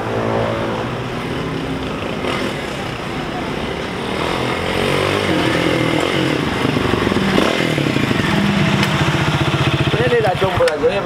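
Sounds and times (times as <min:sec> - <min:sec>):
motorcycle engine running: 0:04.3 - 0:11.0.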